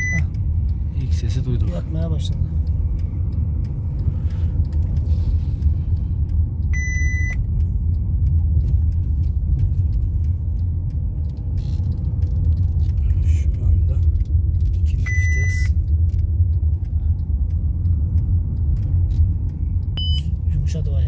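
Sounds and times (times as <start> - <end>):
short electronic beep: 0.0 - 0.3, 6.8 - 7.4, 15.1 - 15.8, 20.0 - 20.4
car engine and road drone: 0.0 - 21.0
light clicks and rattles: 0.3 - 6.7, 7.4 - 15.1, 15.7 - 21.0.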